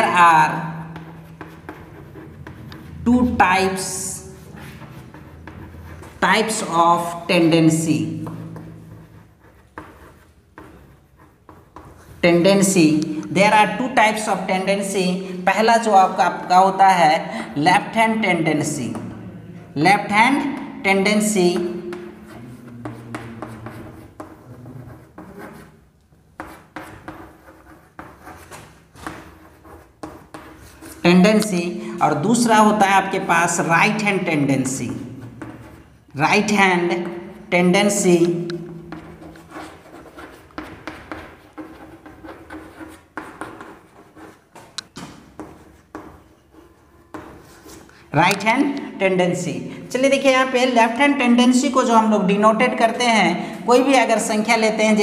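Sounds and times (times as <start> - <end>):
chalk writing on chalkboard: 0.0 - 3.1, 3.7 - 13.3, 20.4 - 31.7, 32.4 - 48.8.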